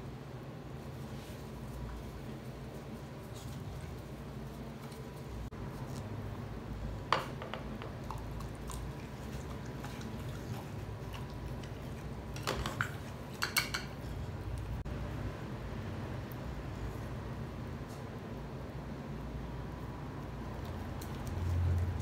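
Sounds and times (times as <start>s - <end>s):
dog chewing noodles: 8.0s - 13.4s.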